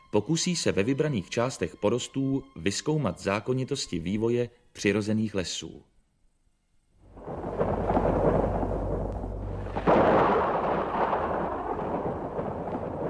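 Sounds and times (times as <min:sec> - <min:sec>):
loud crackling rumble: 0:07.0 - 0:13.0.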